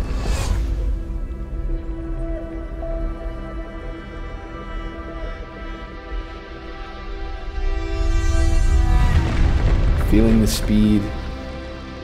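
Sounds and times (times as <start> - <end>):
music with long held notes: 0.0 - 12.0.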